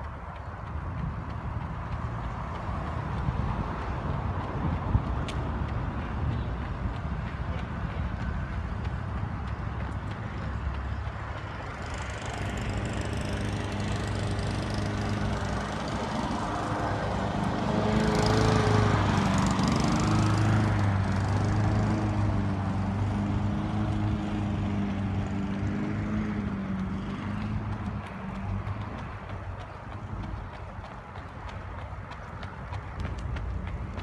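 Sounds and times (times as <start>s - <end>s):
small engine running: 7.9s - 31.3s.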